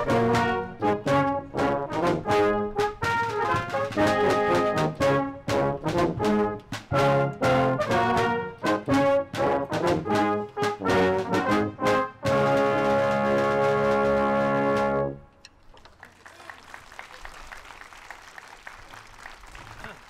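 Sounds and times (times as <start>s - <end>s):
brass band playing: 0.0s - 15.3s.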